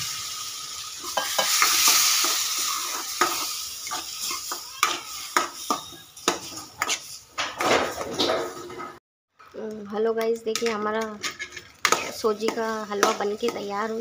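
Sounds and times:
syrup sizzling in hot fat: 0.0s - 7.4s, 11.4s - 14.0s
steel spoon scraping a pan: 0.2s - 9.0s, 10.5s - 14.0s.

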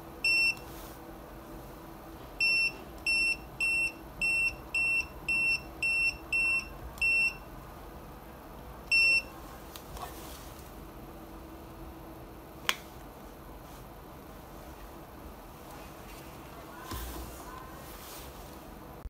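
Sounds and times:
high-pitched key-press beeps: 0.2s - 0.6s, 2.4s - 7.5s, 8.9s - 9.3s.

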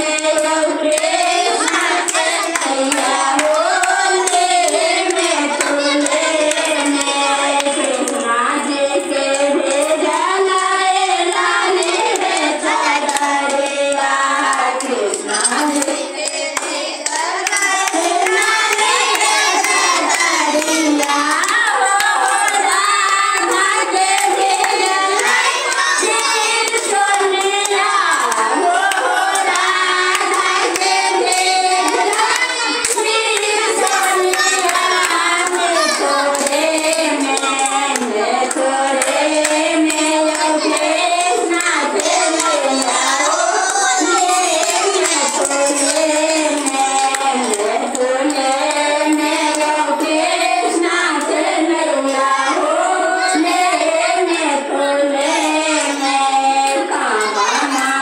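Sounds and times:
woman singing into a microphone: 0.0s - 58.0s
women and children singing: 0.0s - 58.0s.

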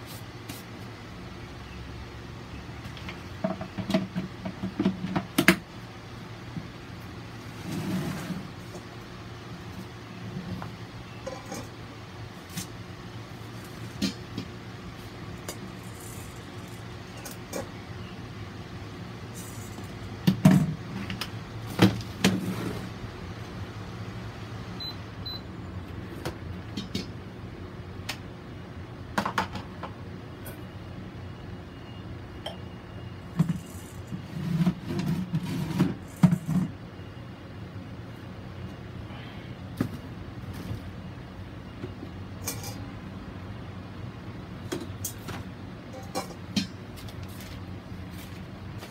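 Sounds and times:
rustling handling noises: 46.9s - 48.9s.

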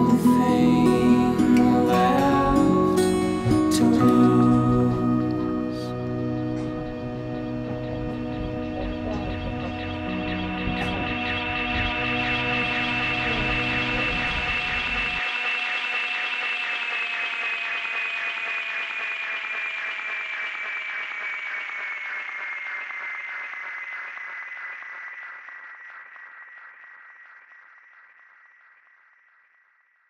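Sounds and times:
background music chord sinking: 0.0s - 17.8s.

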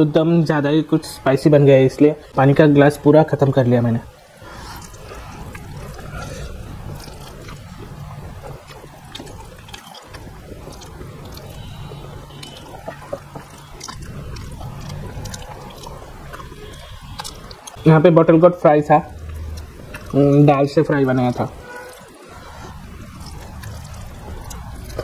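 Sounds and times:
man chewing rice: 4.2s - 17.8s, 19.1s - 20.6s, 21.2s - 25.0s
wet mouth clicks: 4.4s - 17.8s, 19.2s - 20.5s, 21.3s - 25.0s.

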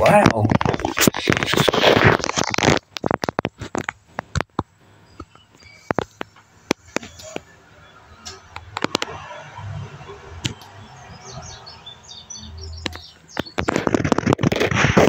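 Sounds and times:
close scraping and crackling: 0.0s - 7.6s, 8.2s - 15.0s
faint high chirps: 5.0s - 6.3s
sharp clicks: 12.8s - 15.0s.

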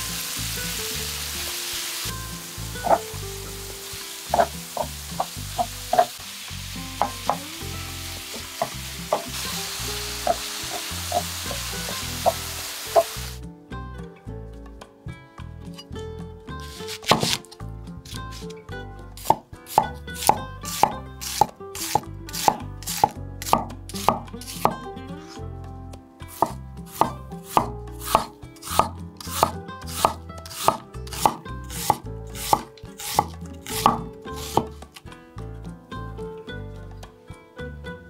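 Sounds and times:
knife chopping on wooden board: 2.8s - 3.0s, 4.3s - 6.1s, 16.6s - 17.5s, 19.2s - 24.8s, 26.3s - 34.7s.

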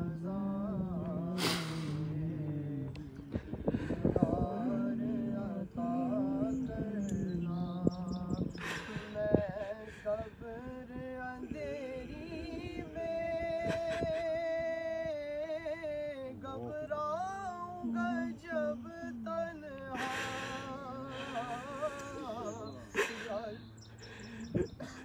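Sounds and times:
person chanting devotional melody: 0.0s - 23.7s.

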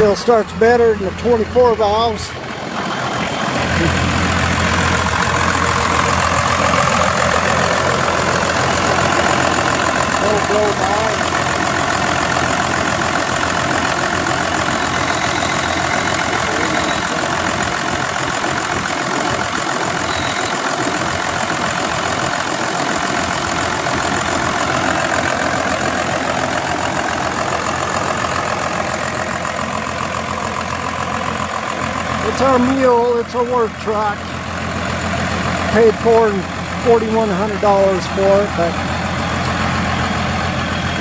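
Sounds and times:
diesel engine idling: 0.0s - 41.0s.

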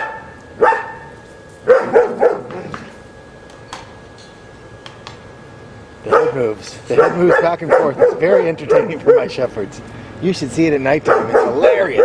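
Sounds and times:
dog barking: 0.0s - 1.1s, 1.7s - 2.6s, 6.0s - 9.4s, 11.0s - 12.0s.

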